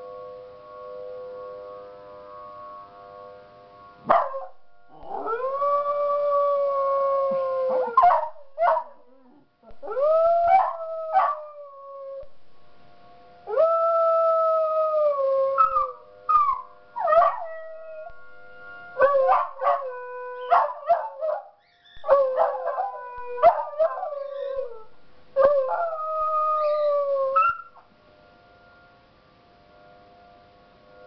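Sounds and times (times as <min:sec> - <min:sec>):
faint siren tone: 0:00.0 - 0:31.0
dogs howling: 0:04.1 - 0:12.2, 0:13.5 - 0:18.2, 0:18.8 - 0:27.8.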